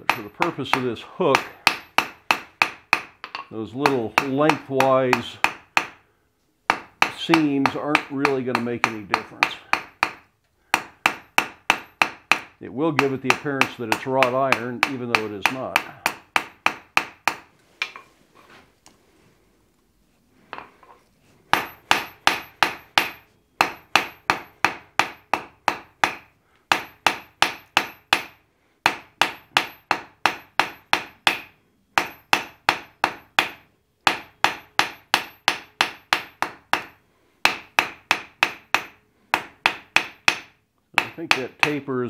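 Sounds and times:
hammer striking hot steel on anvil: 0.0s - 6.0s, 6.7s - 18.0s, 21.5s - 41.9s.

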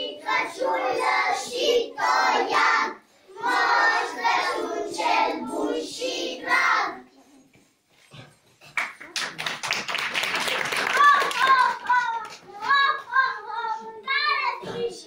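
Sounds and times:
children singing in unison: 0.0s - 7.0s.

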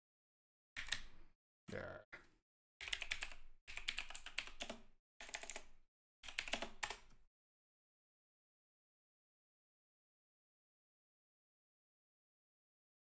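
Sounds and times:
mechanical keyboard typing: 0.8s - 1.1s, 2.8s - 7.1s.

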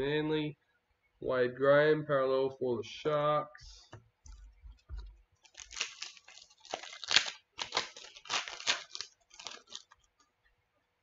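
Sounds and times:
wrapper being torn and crinkled: 5.4s - 10.1s.

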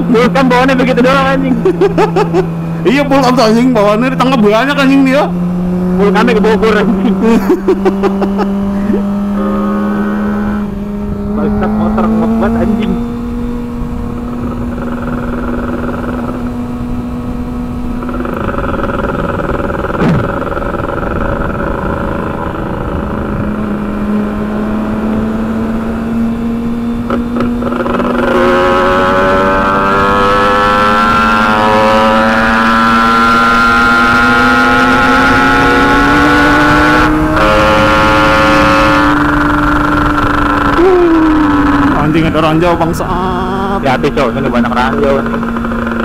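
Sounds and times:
motorcycle accelerating: 0.0s - 46.0s
motorcycle engines cruising: 0.0s - 46.0s
wind rush: 8.6s - 25.3s.

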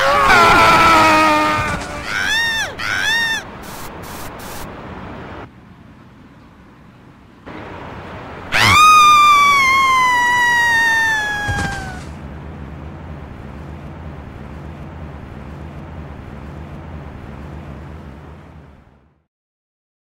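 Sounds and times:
long high-pitched scream: 0.0s - 3.5s, 8.5s - 12.0s
short high cries: 0.0s - 4.6s, 8.5s - 12.2s.

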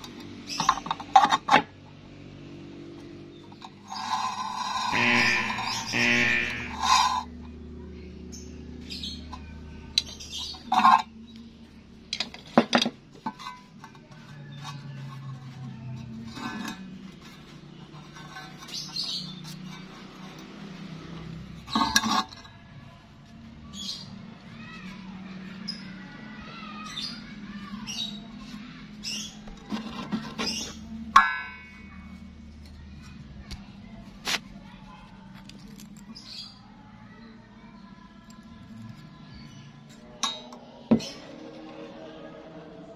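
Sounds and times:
low steady hum: 0.8s - 18.5s
low hum: 4.2s - 10.0s
steel bar clinking and scraping: 6.5s - 7.3s, 9.3s - 11.1s, 12.1s - 15.3s, 16.0s - 20.6s, 21.5s - 22.6s, 29.7s - 31.8s.

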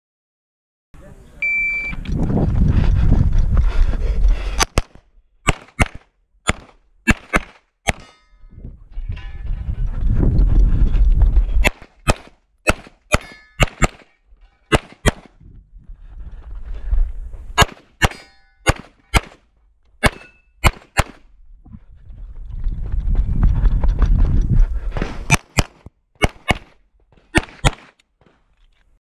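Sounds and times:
pistol shots: 4.6s - 8.2s, 11.6s - 15.3s, 17.6s - 19.4s, 20.0s - 21.2s, 25.3s - 28.0s
low rumble: 21.3s - 25.0s.

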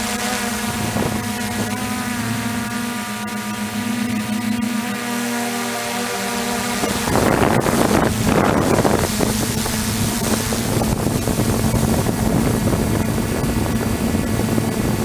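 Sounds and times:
wind buffeting microphone: 0.0s - 3.0s, 6.4s - 15.0s
quadcopter motors running: 0.0s - 15.0s.

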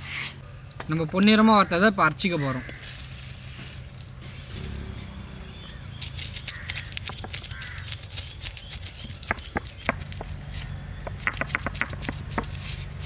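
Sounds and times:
stone roller crushing spices: 5.8s - 13.0s.

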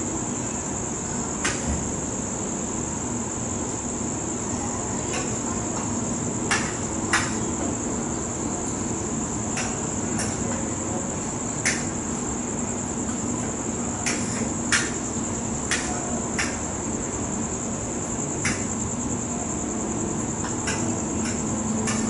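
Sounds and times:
night insects trilling: 0.0s - 22.0s.

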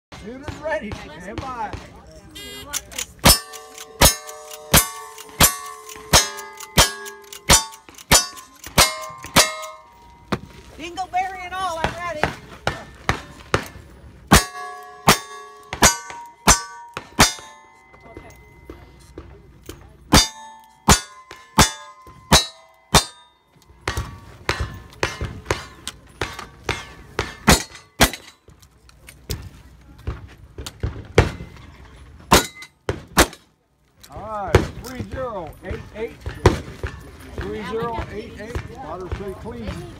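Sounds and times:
steel plate ringing: 2.8s - 10.3s, 14.3s - 19.1s, 20.1s - 28.4s, 32.3s - 32.8s.

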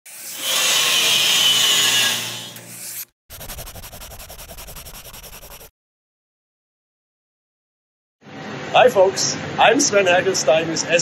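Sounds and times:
loud rasping scraping noise: 0.1s - 5.7s
pulsing scratchy rub: 2.8s - 5.7s.

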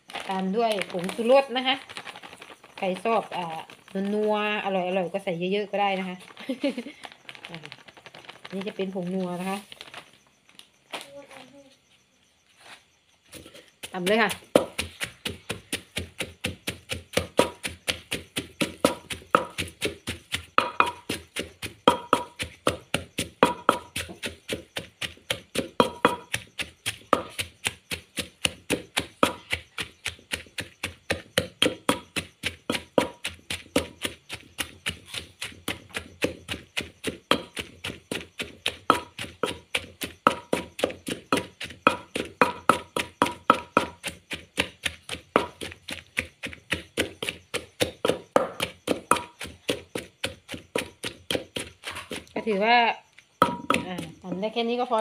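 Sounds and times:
pestle pounding in clay mortar: 13.3s - 55.0s.

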